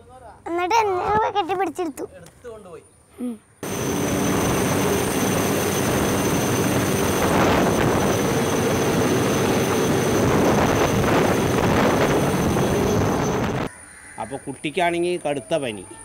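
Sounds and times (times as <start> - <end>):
helicopter rotor and engine: 3.6 - 13.7.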